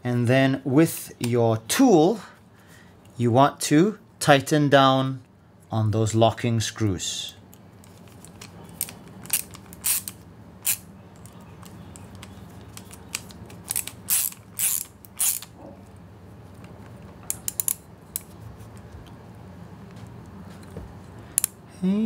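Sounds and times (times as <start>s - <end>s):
ratcheting screwdriver clicking: 8.2s - 15.5s, 17.3s - 18.2s.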